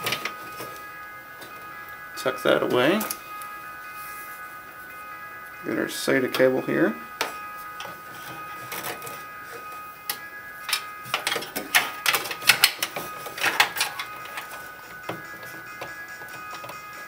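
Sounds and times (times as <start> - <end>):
cables clicking in metal case: 0.0 - 1.7, 3.0 - 3.2, 7.2 - 17.0.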